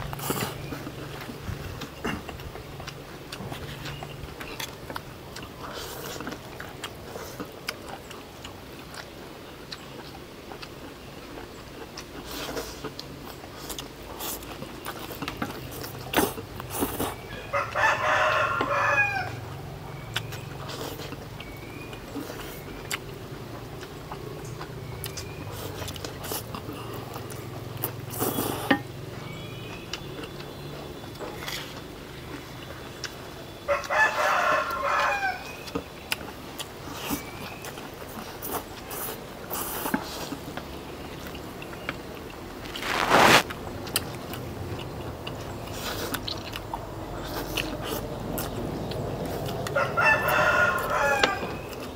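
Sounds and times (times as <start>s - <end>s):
rooster crowing: 17.3s - 19.5s, 33.7s - 35.6s, 49.6s - 51.8s.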